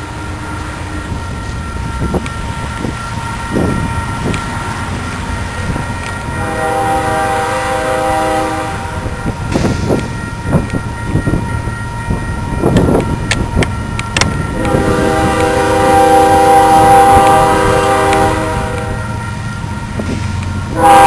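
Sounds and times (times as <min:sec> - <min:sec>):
locomotive air horn blast: 0:06.4 - 0:09.1, 0:14.6 - 0:19.1, 0:20.7 - 0:21.0.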